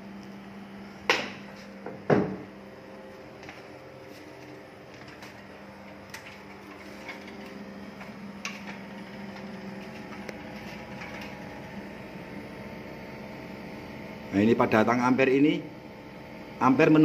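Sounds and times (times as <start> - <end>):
air conditioner humming: 0.0 - 17.0.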